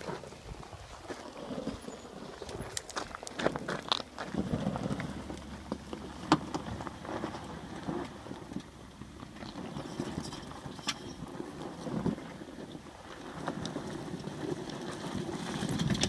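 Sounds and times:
stones crunching under tyres: 0:00.0 - 0:16.0
van engine under load: 0:03.5 - 0:16.0.

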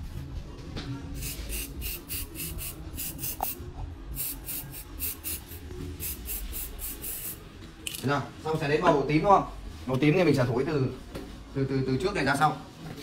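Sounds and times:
aerosol spray bursts: 0:01.2 - 0:03.6, 0:04.2 - 0:07.4.

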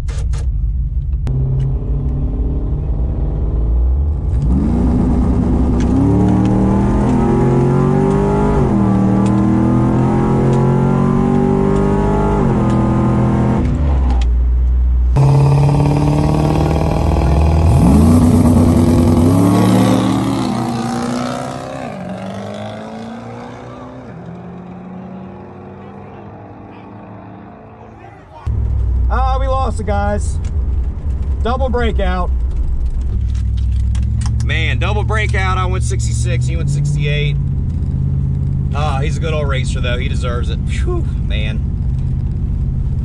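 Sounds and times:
truck engine revving through gears: 0:01.2 - 0:14.3, 0:15.1 - 0:29.1, 0:32.6 - 0:43.0
racing engines revving past: 0:15.2 - 0:28.3.

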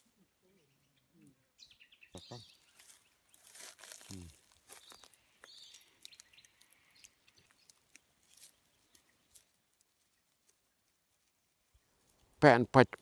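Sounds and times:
dry stems clicking and crackling: 0:02.7 - 0:12.4.

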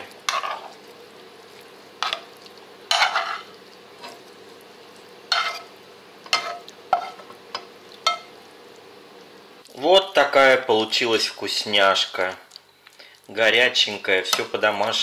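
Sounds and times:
metal spoon scraping frying pan: 0:00.3 - 0:00.7, 0:02.9 - 0:04.2, 0:05.3 - 0:05.7, 0:06.3 - 0:07.3.

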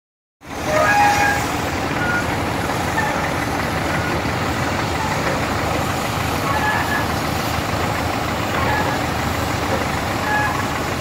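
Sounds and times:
tractor engine running: 0:00.4 - 0:11.0
machinery squeals: 0:00.6 - 0:04.3, 0:04.9 - 0:05.4, 0:06.4 - 0:07.3, 0:08.5 - 0:11.0.

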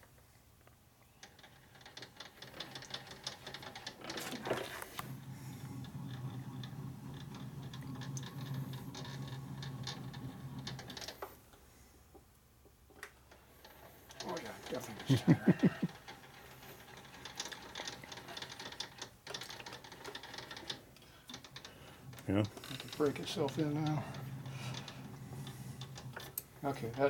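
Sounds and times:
steady mechanical hum: 0:04.2 - 0:12.0
handwheel gearing clicking: 0:13.6 - 0:27.0.

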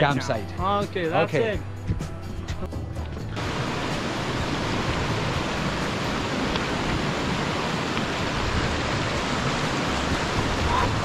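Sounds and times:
stream rushing over boulders: 0:03.2 - 0:11.0.

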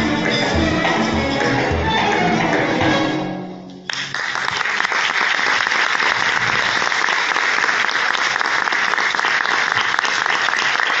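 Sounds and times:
music: 0:00.0 - 0:04.3
audience applauding: 0:03.9 - 0:11.0.

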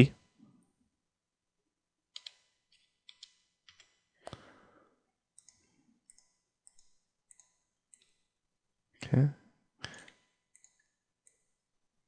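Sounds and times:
computer mouse clicking: 0:02.1 - 0:04.4, 0:05.3 - 0:08.3, 0:09.9 - 0:11.6.

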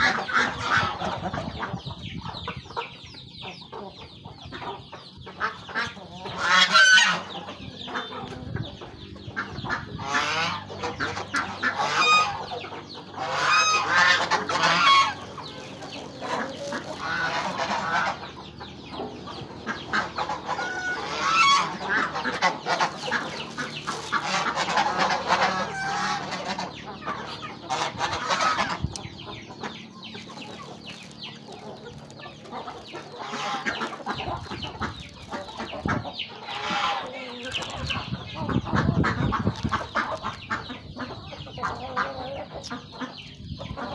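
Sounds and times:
geese honking: 0:00.0 - 0:01.7, 0:04.7 - 0:08.6, 0:09.2 - 0:43.9
chickens clucking: 0:00.0 - 0:43.9.

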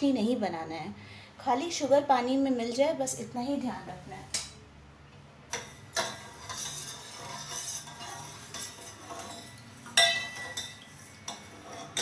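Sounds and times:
spoon stirring in a steel saucepan: 0:05.6 - 0:12.0
spoon clinking on pan: 0:08.5 - 0:12.0.

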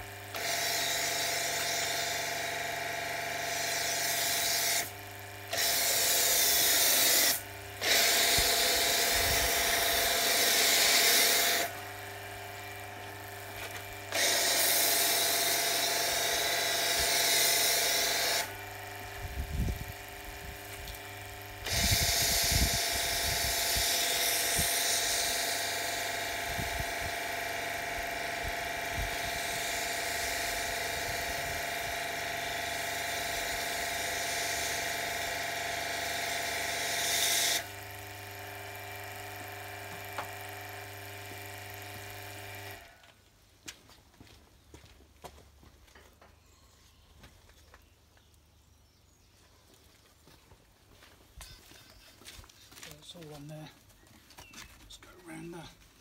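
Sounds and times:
pressure washer pump whine: 0:00.0 - 0:43.2.

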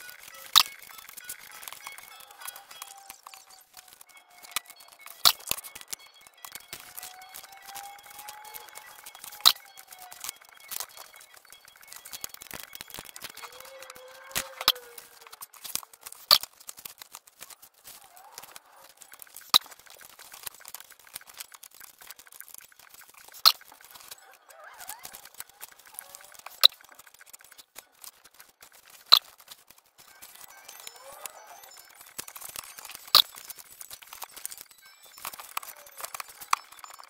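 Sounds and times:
faint voices: 0:00.0 - 0:16.3, 0:23.7 - 0:28.0
notebook pages clicking onto discs: 0:00.0 - 0:37.0.

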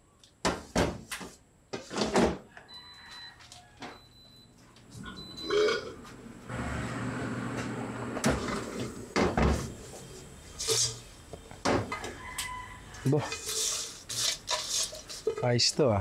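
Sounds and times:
high beep: 0:04.0 - 0:05.9
air fryer rushing noise: 0:06.5 - 0:09.8.

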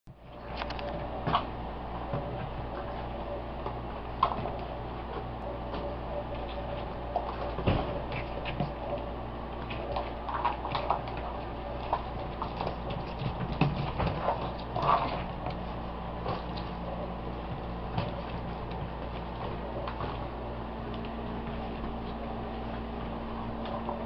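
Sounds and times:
puppies scuffling and thumping: 0:00.1 - 0:24.0
steady low hum: 0:00.1 - 0:24.0.

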